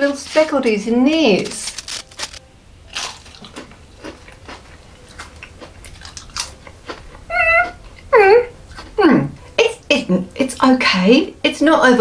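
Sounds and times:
cracker crunching: 0:00.0 - 0:07.8.

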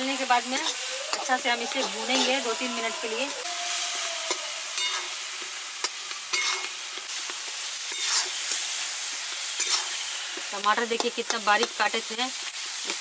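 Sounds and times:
masala sizzling in oil: 0:00.0 - 0:13.0
spatula scraping a pan: 0:00.4 - 0:02.9, 0:04.3 - 0:05.2, 0:05.8 - 0:06.7, 0:07.9 - 0:08.8, 0:09.5 - 0:10.2.

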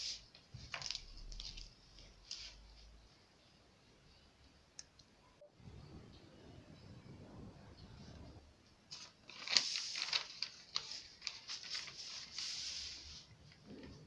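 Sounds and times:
paper rustle: 0:00.0 - 0:02.9, 0:08.9 - 0:13.6.

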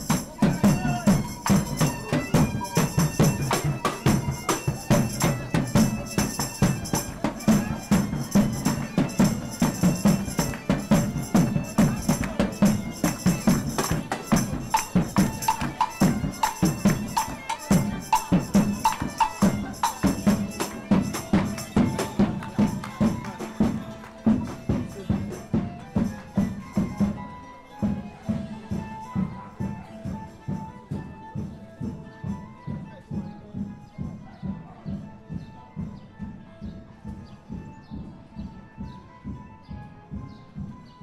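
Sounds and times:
tambourine jingles: 0:00.0 - 0:32.6
drum beat: 0:00.0 - 0:33.6
wind instrument melody: 0:00.0 - 0:41.0.

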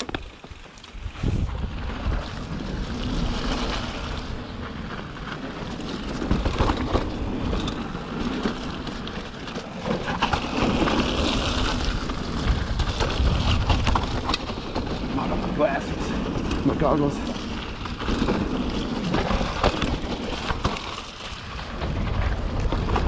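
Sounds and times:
bike knocks and rattles: 0:00.0 - 0:01.1, 0:01.8 - 0:23.0
tyres rolling over mud: 0:00.0 - 0:23.0
wind noise on microphone: 0:01.0 - 0:05.2, 0:10.1 - 0:15.3, 0:21.4 - 0:23.0.

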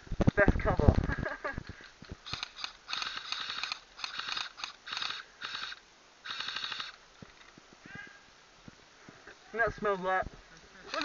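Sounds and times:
airsoft rifle automatic bursts: 0:02.2 - 0:07.0.

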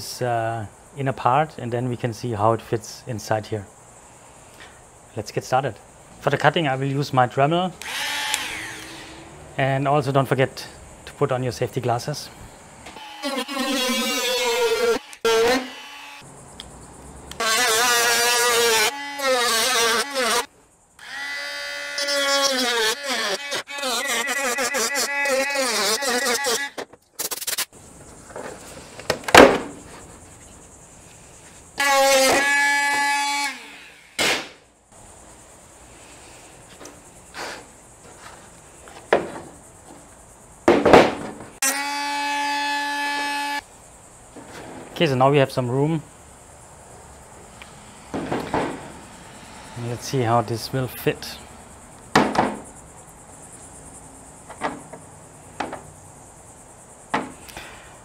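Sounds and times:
rotary tool whining: 0:07.8 - 0:09.3, 0:12.9 - 0:16.2, 0:17.3 - 0:26.8, 0:47.4 - 0:50.6
steady squeal: 0:47.2 - 0:51.9.

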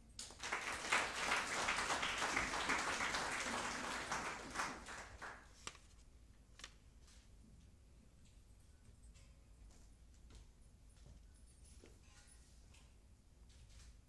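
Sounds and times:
audience applauding: 0:00.2 - 0:05.6.

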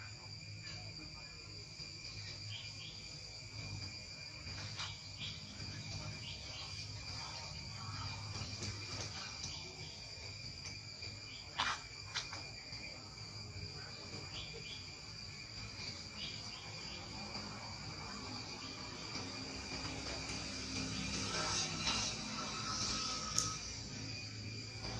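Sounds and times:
insects droning: 0:00.0 - 0:24.9
sharp clicks: 0:23.3 - 0:23.6.

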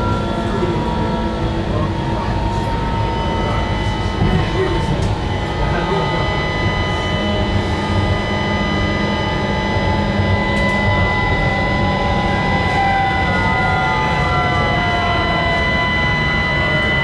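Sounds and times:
high-pitched whine: 0:00.0 - 0:17.0
train wheels rumbling on rails: 0:01.7 - 0:08.0.

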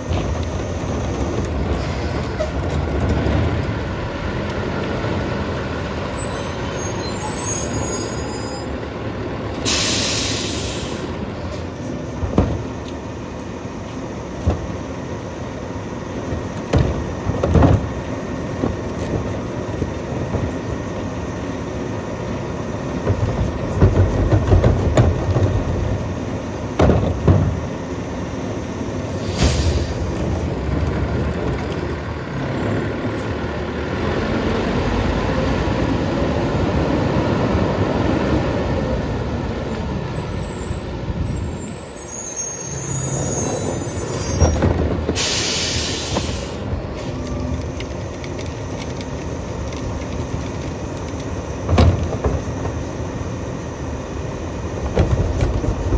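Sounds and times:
sharp air hiss: 0:09.6 - 0:11.2, 0:29.2 - 0:30.1, 0:45.1 - 0:46.7.

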